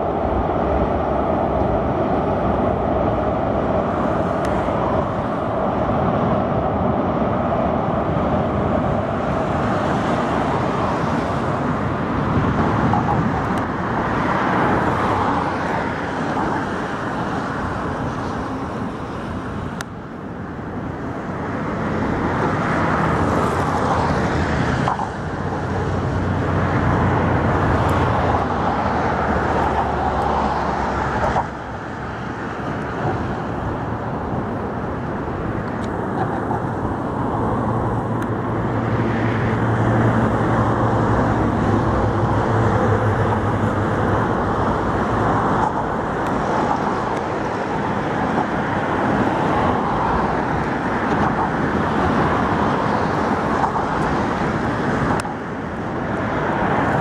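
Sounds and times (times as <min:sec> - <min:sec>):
road traffic passing: 0:00.0 - 0:57.0.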